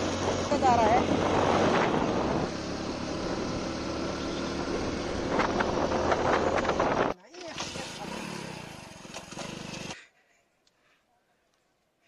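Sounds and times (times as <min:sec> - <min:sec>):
wind rushing over microphone: 0:00.0 - 0:03.7, 0:04.6 - 0:07.2
motorcycle engine: 0:00.0 - 0:10.0.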